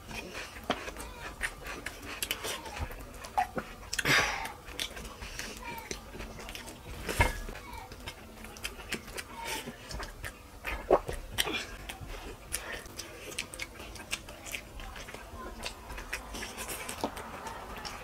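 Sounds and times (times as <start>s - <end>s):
mouth clicks and chewing: 0.0s - 6.9s, 7.5s - 18.0s
fingers mixing rice: 0.0s - 18.0s.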